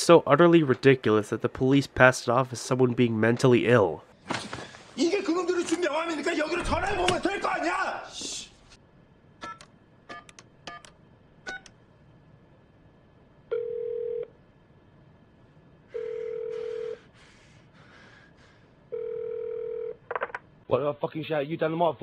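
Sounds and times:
keypad beeps: 9.4 - 11.8
telephone ringback tone: 13.5 - 14.3, 15.9 - 17.0, 18.9 - 20.0.

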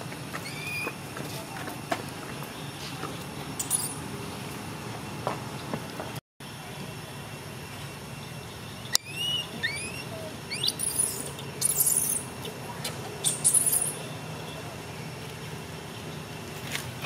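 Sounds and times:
small animal squeaky chirps: 0.4 - 0.9, 8.9 - 14.0.

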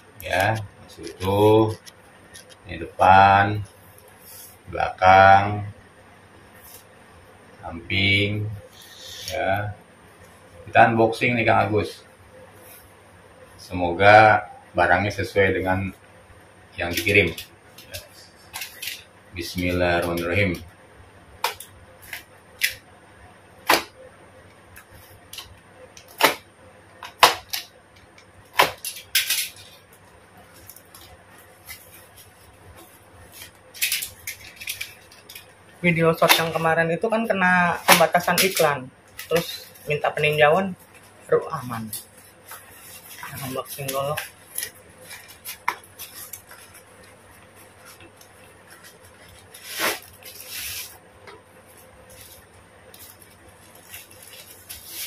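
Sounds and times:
paper rustling: 41.7 - 51.0, 51.6 - 55.0
paper wrapping tearing: 41.8 - 51.0, 52.1 - 55.0
knife slitting tape on cardboard: 49.6 - 51.0.

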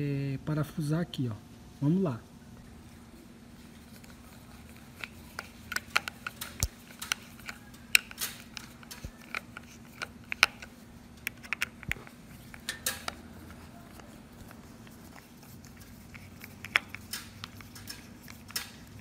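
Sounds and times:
screwdriver clicking and ticking: 5.0 - 13.2.

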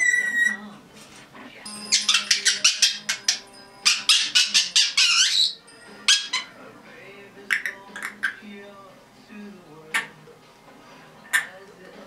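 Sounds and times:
parrot calling: 0.0 - 0.6, 1.8 - 6.6, 7.5 - 8.4
parrot warbling: 0.0 - 0.6, 1.9 - 6.6.

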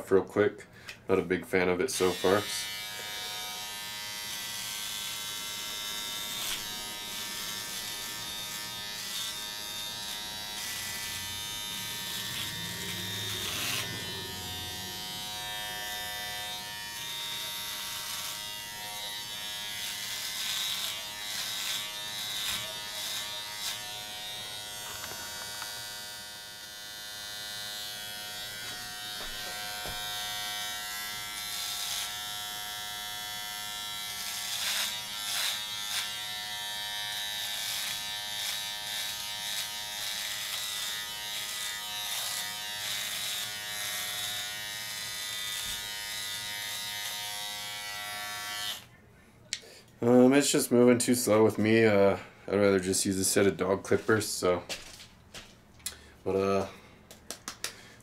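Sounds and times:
blade crackling cutting hair: 1.9 - 48.9
hair trimmer buzzing: 2.0 - 48.9.

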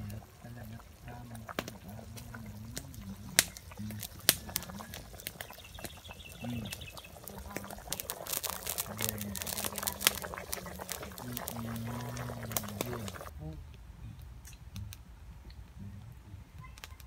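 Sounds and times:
fire pops and crackles: 0.0 - 13.3, 14.2 - 15.8, 16.6 - 17.0
broth boiling hard: 0.0 - 13.4
distant voices murmuring: 0.0 - 14.2.

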